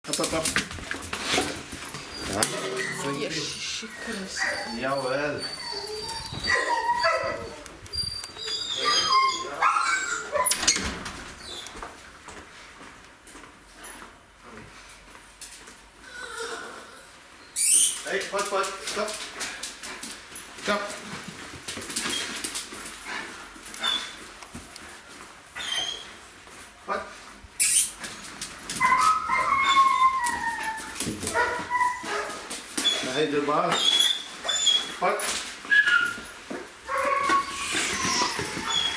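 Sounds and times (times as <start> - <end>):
dog whining: 1.4 - 10.8, 16.1 - 18.0, 23.8 - 24.2, 25.6 - 26.2, 27.6 - 35.0, 35.6 - 38.9
dog yip: 4.0 - 7.7, 8.4 - 10.7, 28.8 - 33.1.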